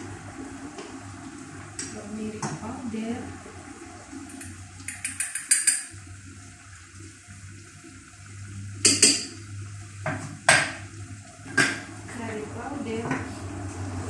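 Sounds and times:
utensils clinking on dishes: 4.3s - 5.9s.

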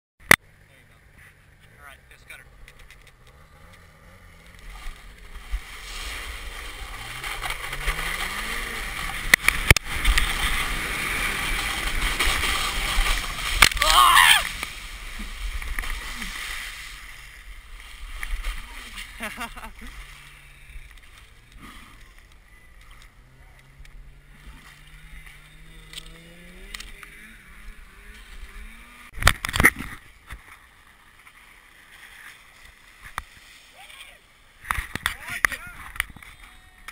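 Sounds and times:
snowmobile engine: 0.2s - 36.9s
drawn-out voice-like call: 13.7s - 14.6s.

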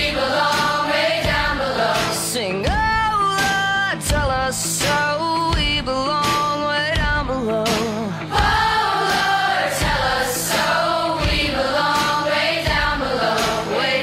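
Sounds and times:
voices singing together: 0.0s - 2.6s, 8.2s - 14.0s
heavy drum beat: 0.0s - 14.0s.

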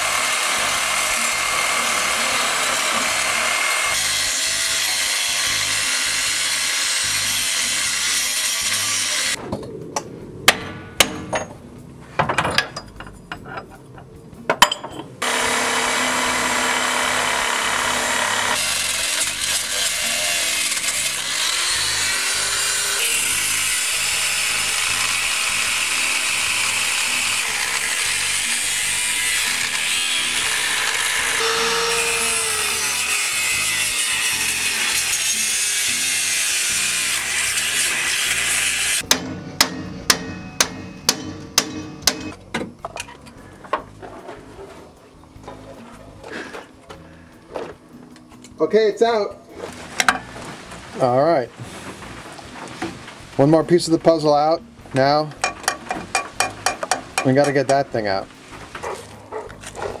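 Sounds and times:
angle grinder grinding metal: 0.0s - 9.4s, 15.2s - 42.4s.

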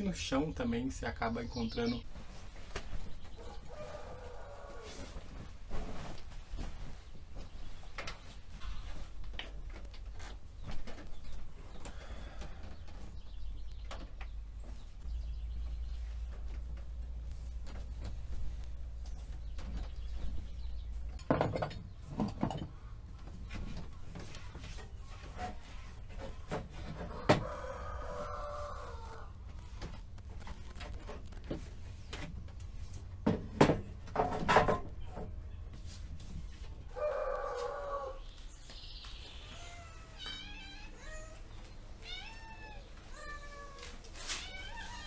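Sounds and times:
cat meowing: 39.5s - 41.4s, 42.0s - 45.0s.

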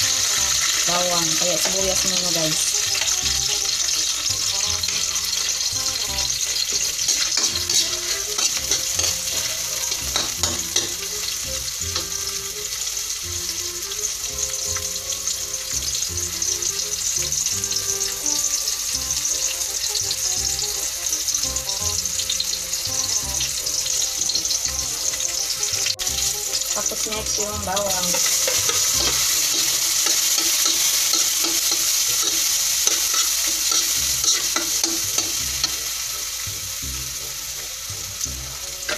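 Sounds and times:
metal spatula scraping pan: 0.0s - 11.4s, 17.8s - 35.9s
onions sizzling in oil: 0.0s - 38.9s.

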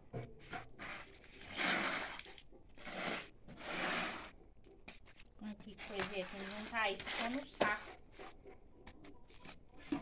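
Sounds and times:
push broom scraping wet floor: 0.8s - 4.4s, 5.6s - 7.9s.

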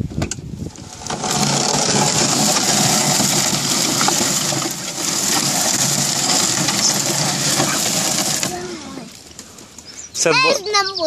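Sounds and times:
vegetation brushing against vehicle: 0.7s - 9.8s
electric drive motor running: 0.8s - 9.2s.

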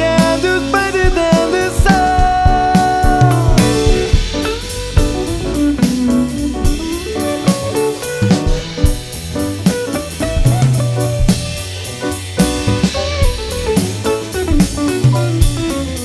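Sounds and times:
drum kit: 0.0s - 16.0s
electric guitar lead: 0.0s - 16.0s.

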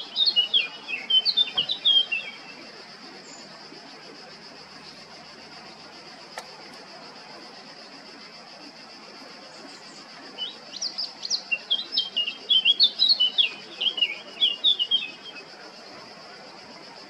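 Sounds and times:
bird warbling song: 0.0s - 3.6s, 9.5s - 15.6s
high-pitched hiss: 0.0s - 17.0s.

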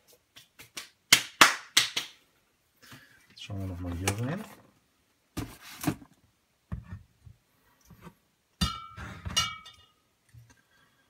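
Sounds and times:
glass bottles clinking on table: 8.6s - 10.0s.

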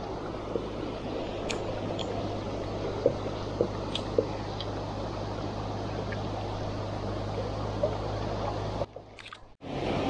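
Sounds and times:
river water rushing: 0.0s - 8.9s
short clicks: 9.2s - 9.5s.

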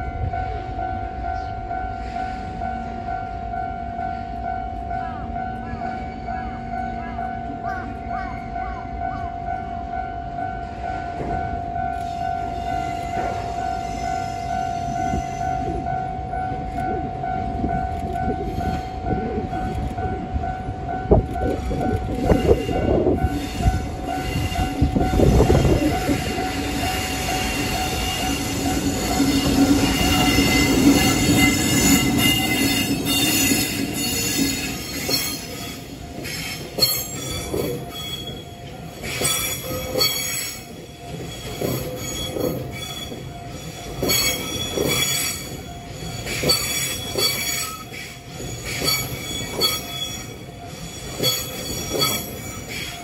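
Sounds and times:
electric locomotive hum: 0.0s - 53.0s
wheels squealing: 22.2s - 53.0s.

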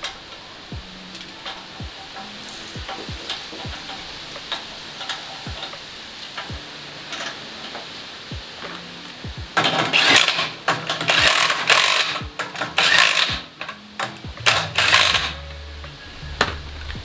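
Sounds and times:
cordless impact driver bursts: 9.6s - 13.5s, 14.5s - 15.3s.

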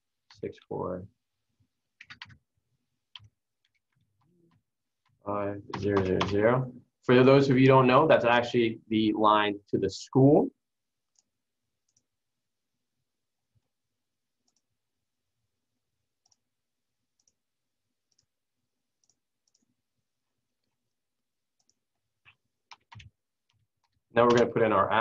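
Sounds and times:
computer mouse clicks: 11.1s - 12.1s, 14.4s - 14.7s, 16.2s - 16.5s, 19.0s - 19.7s, 21.6s - 24.6s.

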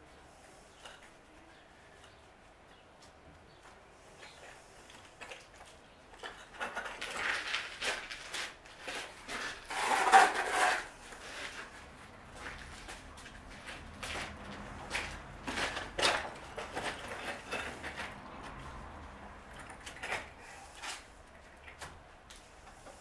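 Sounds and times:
building materials being handled: 4.2s - 18.9s
hand tools scraping and knocking: 4.2s - 22.0s.

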